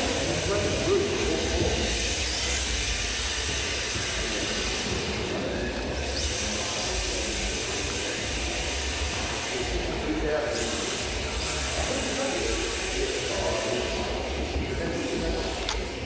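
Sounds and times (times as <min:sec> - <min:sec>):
model car running hiss: 0:00.0 - 0:16.0.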